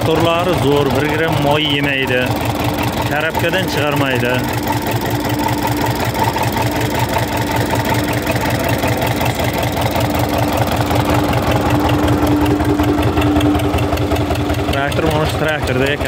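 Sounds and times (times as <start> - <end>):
tractor diesel engine idling: 0.0 - 16.0.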